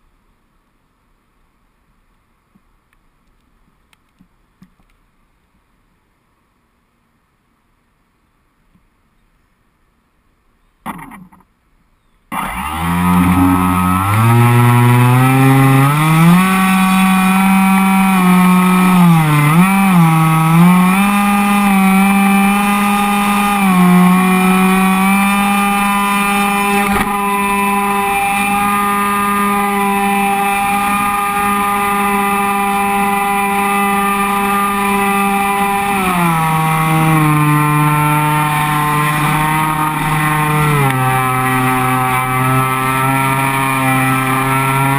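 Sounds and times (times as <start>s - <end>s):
electric motor and propeller whine: 12.3s - 44.9s.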